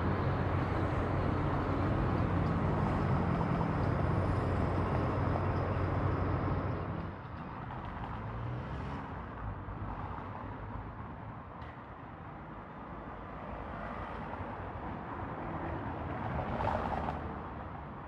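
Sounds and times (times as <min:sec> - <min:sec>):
road noise: 0:00.0 - 0:18.0
street noise: 0:00.0 - 0:18.0.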